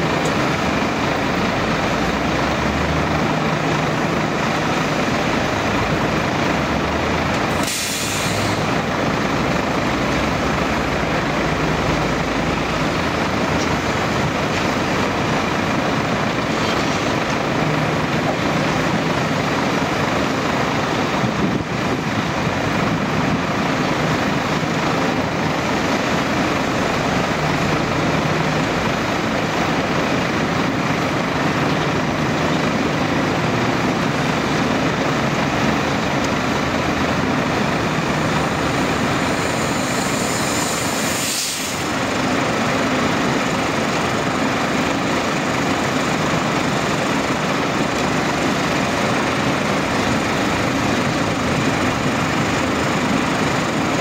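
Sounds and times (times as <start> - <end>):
diesel machinery engines running: 0.0 - 54.0
short hiss: 7.6 - 8.7, 39.8 - 41.9.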